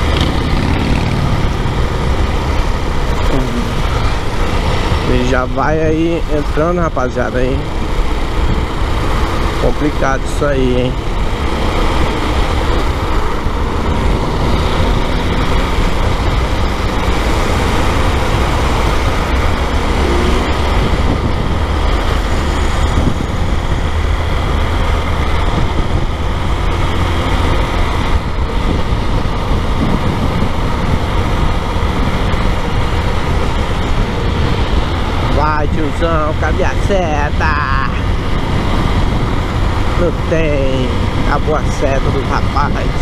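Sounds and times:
motorcycle engine running: 0.0 - 6.7
passing traffic: 0.0 - 43.0
road and wind noise: 0.0 - 43.0.

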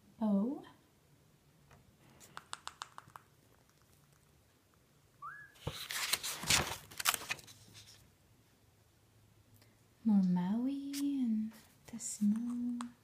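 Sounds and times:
short high chirps: 5.2 - 5.6
paper page rustling: 5.6 - 8.1.

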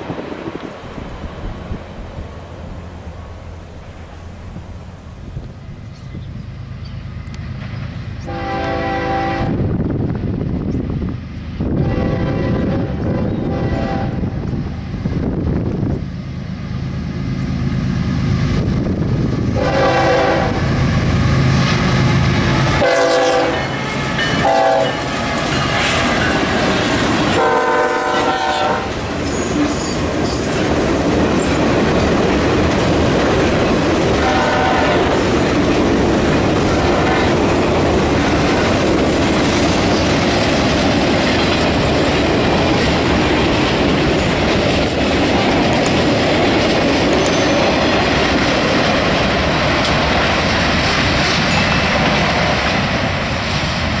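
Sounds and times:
diesel locomotive passing: 0.0 - 54.0
locomotive air horn blasts: 8.2 - 9.6, 11.8 - 14.4, 19.6 - 20.7, 22.7 - 25.1, 27.3 - 29.0, 34.2 - 35.2
train wheel clatter: 21.2 - 54.0.

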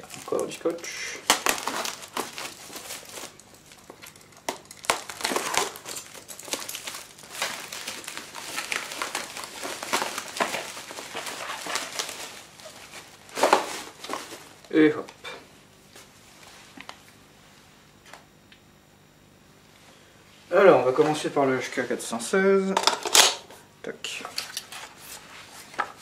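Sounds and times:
bubble wrap crinkling: 0.0 - 15.1.

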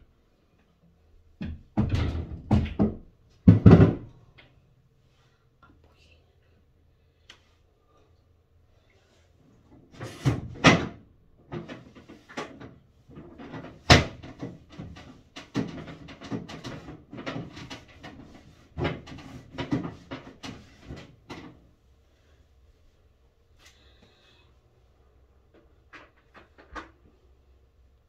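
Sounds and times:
knocks and clatters: 1.4 - 4.2, 10.4 - 21.7, 25.5 - 27.1.

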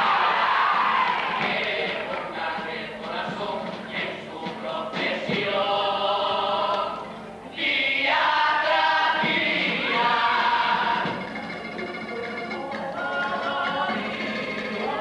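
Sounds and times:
choir singing held notes: 0.0 - 15.0
guitar accompaniment: 9.2 - 15.0.

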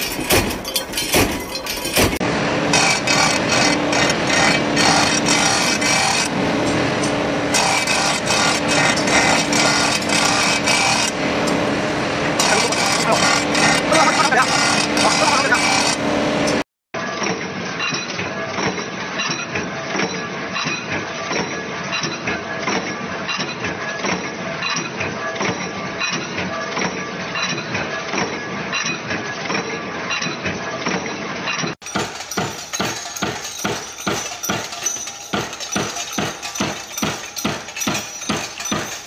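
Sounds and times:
stamping press metallic clatter: 0.0 - 2.2, 17.1 - 39.0
punch press striking: 31.8 - 39.0.

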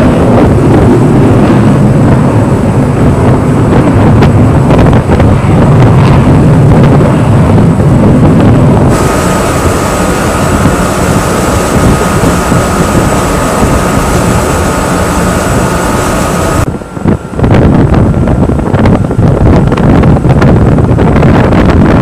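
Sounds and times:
boat engine noise: 0.0 - 22.0
wind buffeting microphone: 0.0 - 22.0
thin whine: 8.0 - 22.0.

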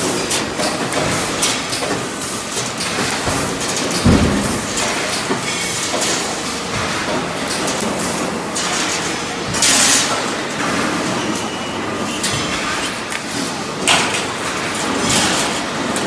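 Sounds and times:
welding machine and workshop machinery: 0.0 - 16.0.

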